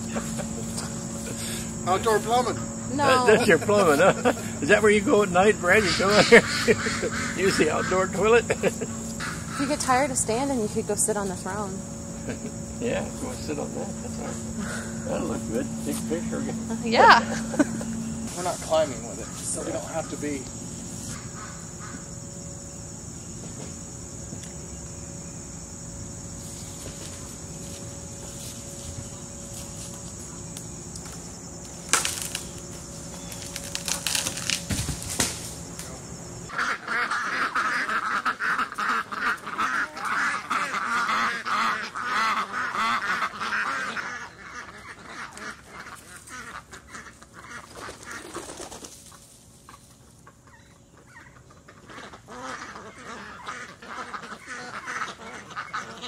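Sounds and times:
ducks quacking: 0.0s - 22.2s, 36.5s - 56.0s
insects trilling: 0.0s - 56.0s
dry wood crackling: 26.6s - 36.0s
sharp crack of wood: 31.9s - 32.6s, 33.3s - 35.9s.

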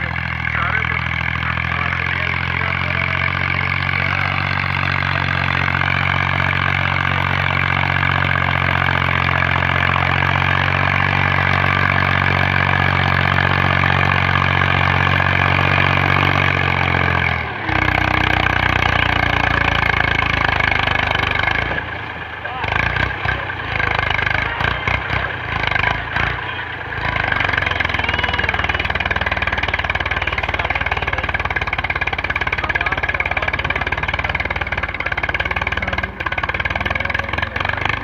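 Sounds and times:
tractor diesel engine running: 0.0s - 38.0s.

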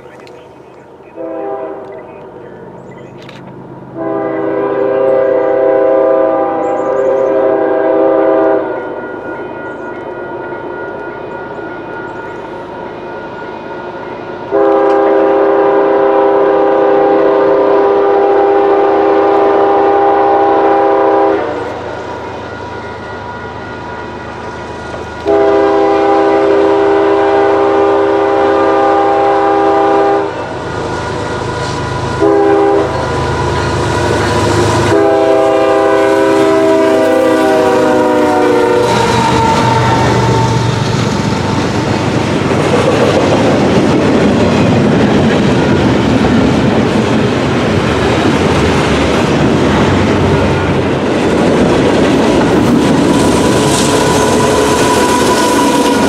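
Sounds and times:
train rumbling past: 0.0s - 56.0s
locomotive air horn blasts: 1.2s - 2.0s, 4.0s - 11.2s, 14.5s - 24.2s, 25.0s - 41.0s, 53.1s - 56.0s
wheels clacking over rail joints: 40.8s - 56.0s.

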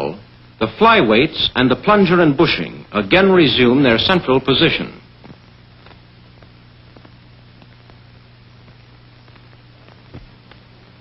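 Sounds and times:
film soundtrack hiss: 0.0s - 11.0s
faint clicks and pops: 5.2s - 11.0s.

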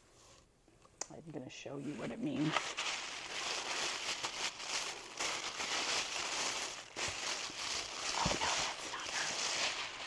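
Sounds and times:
packaging crinkling: 2.2s - 10.0s.

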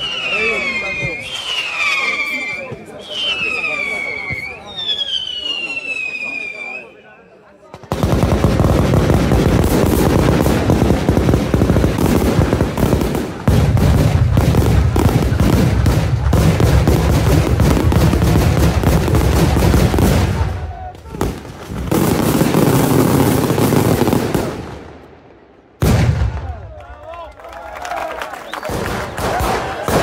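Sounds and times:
fireworks bangs: 7.7s - 26.8s, 28.5s - 30.0s
crackling fireworks stars: 7.8s - 25.4s.

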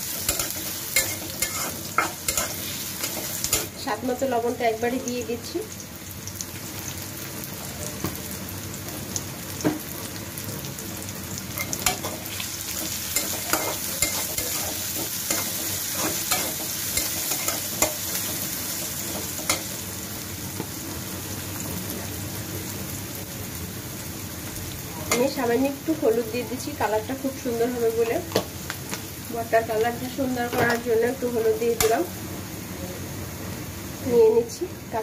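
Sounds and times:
onion and garlic sizzling in oil: 0.0s - 35.0s
spatula scraping and clicking on pan: 0.2s - 3.7s, 13.2s - 18.4s.

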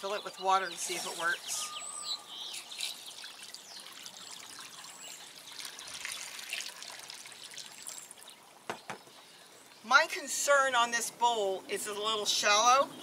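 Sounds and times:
water pouring into ceramic bowl: 2.7s - 8.3s.

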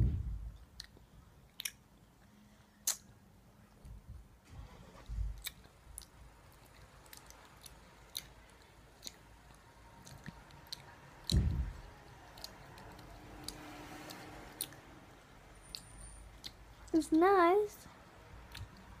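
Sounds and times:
low thump: 0.0s - 0.6s, 11.3s - 11.8s
wet mouth clicks: 0.7s - 1.8s, 2.8s - 3.1s, 9.0s - 9.2s, 15.6s - 16.6s, 18.4s - 18.9s
chewing soft sweet: 5.4s - 14.9s, 15.5s - 17.0s, 17.8s - 19.0s.

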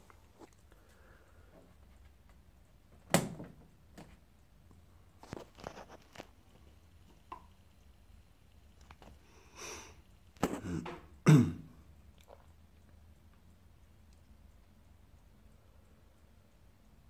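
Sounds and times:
person clearing throat: 10.4s - 11.8s
faint clicks: 12.2s - 17.0s.

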